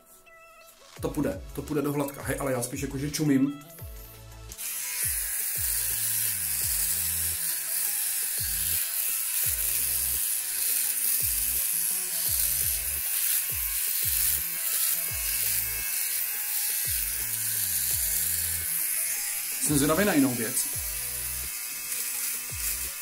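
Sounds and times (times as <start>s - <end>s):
background music with bass line: 0.9s - 7.4s, 19.6s - 21.5s
electric shaver buzzing: 3.1s - 23.0s.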